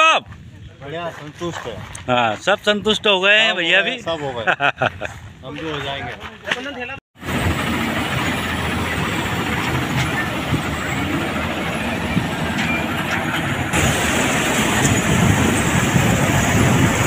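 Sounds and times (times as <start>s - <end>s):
combine harvester engine running: 7.2s - 17.0s
tractor diesel engine running: 7.2s - 17.0s.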